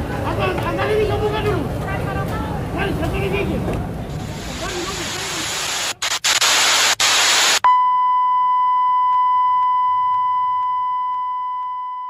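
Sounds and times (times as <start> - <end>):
tv static hiss: 4.1 - 7.6
high-pitched test tone beep: 7.6 - 12.0.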